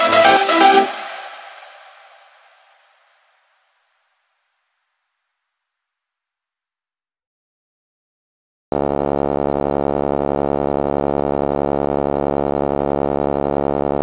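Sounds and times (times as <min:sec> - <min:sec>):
buzzy electronic tone: 0:08.7 - 0:14.0.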